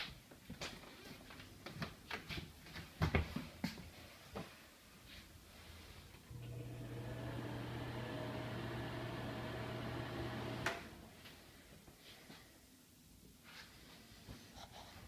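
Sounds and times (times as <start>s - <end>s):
exhaust fan motor humming: 6.2s - 11.2s.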